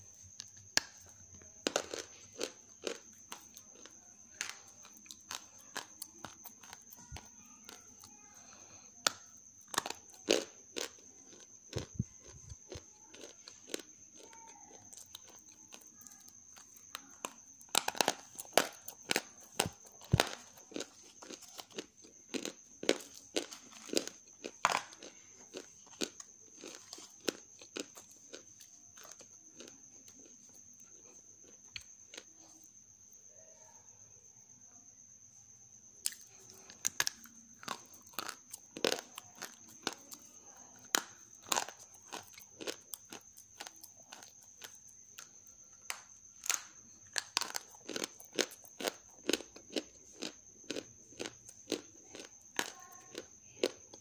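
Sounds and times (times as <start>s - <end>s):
dry clay crunching and cracking: 0.4s - 30.3s.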